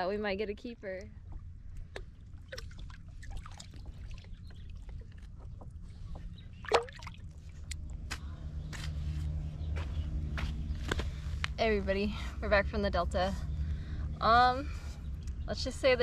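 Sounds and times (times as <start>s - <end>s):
steady low hum: 0.0s - 16.0s
water lapping and splashing: 1.2s - 7.8s.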